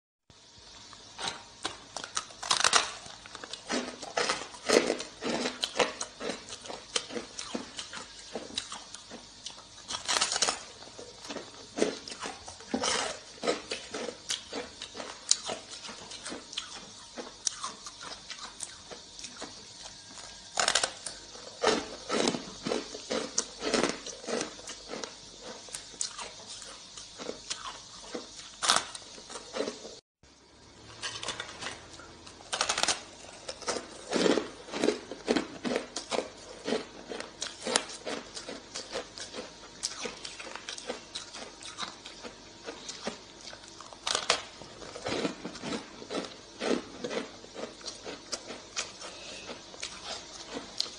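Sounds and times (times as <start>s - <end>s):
ice being chewed: 0.8s - 30.0s, 31.0s - 50.9s.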